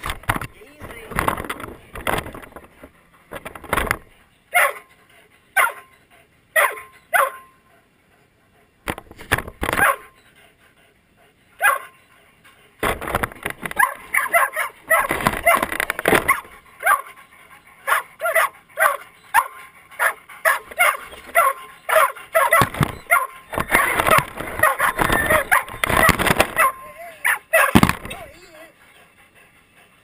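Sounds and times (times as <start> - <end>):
dogs yipping and whining: 4.0 - 8.7, 9.7 - 30.0
dull thumps: 12.8 - 16.7, 22.4 - 26.8, 27.6 - 28.3.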